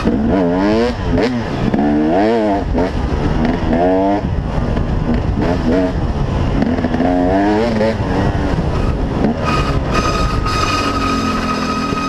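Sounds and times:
dirt bike engine revving: 0.0s - 12.0s
high-pitched brake squeal: 8.8s - 12.0s.

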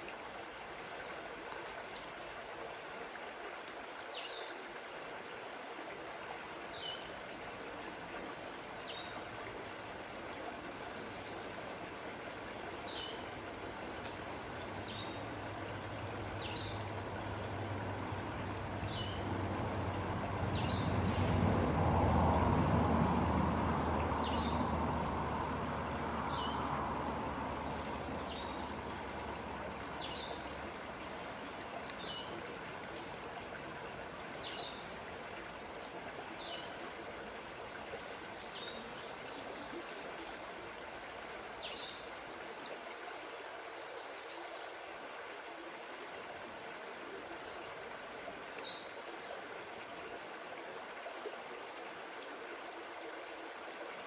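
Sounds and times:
creek water running over rocks: 0.0s - 54.0s.

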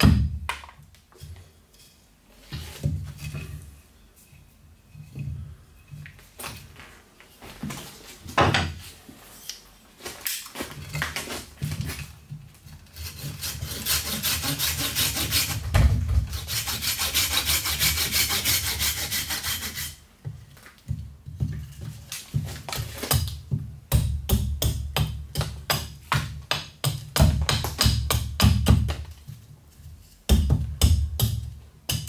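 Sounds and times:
hand saw cutting wood: 12.9s - 15.6s, 16.3s - 20.0s
axe chopping wood: 23.0s - 29.0s, 30.3s - 32.0s.

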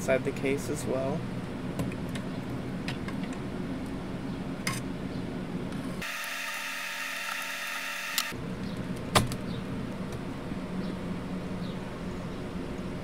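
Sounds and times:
background hum: 0.0s - 13.0s
high hissing whine: 6.0s - 8.4s.

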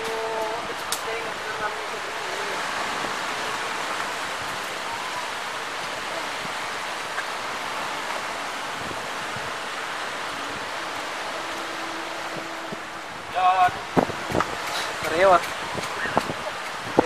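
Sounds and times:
sea surf: 0.0s - 17.0s
wind: 0.0s - 17.0s.

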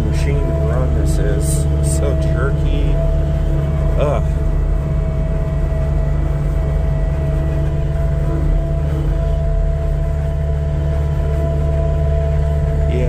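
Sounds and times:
diesel engine running: 0.0s - 13.0s.

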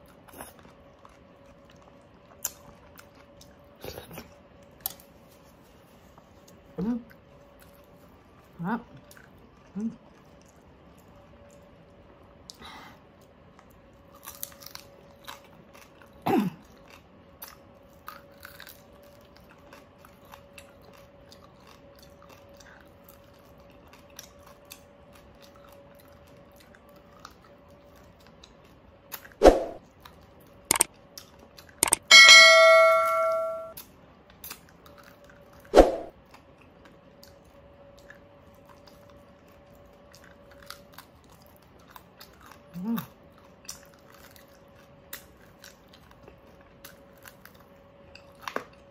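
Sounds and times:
chewing and crunching: 0.0s - 32.0s, 33.8s - 48.9s
bell-like ring: 31.8s - 33.7s.

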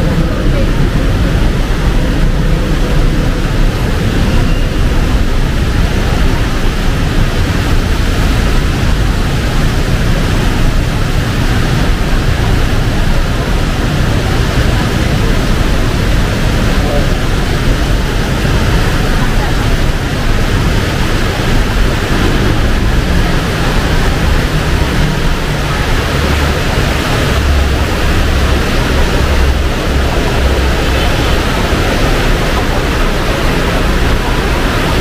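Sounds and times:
heavy rain pouring: 0.0s - 35.0s.

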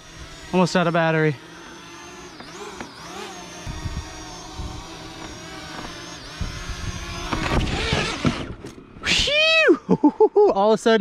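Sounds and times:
drone propellers whining: 0.0s - 9.9s
gusty wind buffeting: 3.6s - 9.1s.

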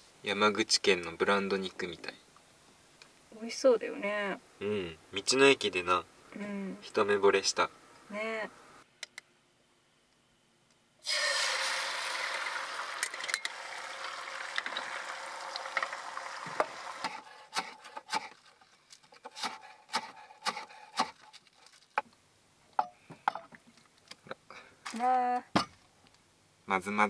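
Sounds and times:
egg sizzling in a frying pan: 11.0s - 17.4s
knife chopping on wooden board: 16.6s - 18.4s, 19.3s - 21.2s.

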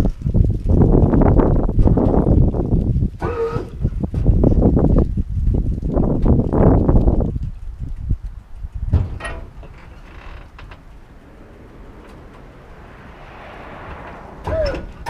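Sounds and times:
short crackles: 0.0s - 15.0s
faint steady noise: 7.6s - 15.0s
car body creaking: 8.8s - 15.0s.

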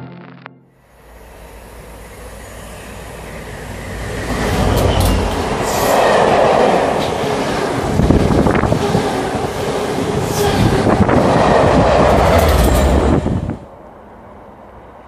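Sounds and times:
passenger train passing at speed: 0.8s - 15.0s
high clicks of train wheels: 4.3s - 7.2s, 12.2s - 13.2s.

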